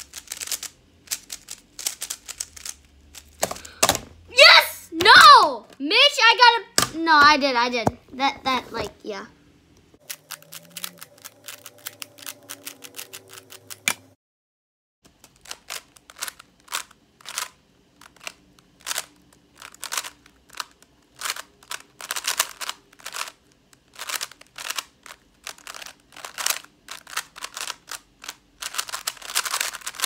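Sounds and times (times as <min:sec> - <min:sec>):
puzzle cube clicking as turned: 0:00.0 - 0:04.0, 0:10.0 - 0:14.0, 0:15.2 - 0:30.0.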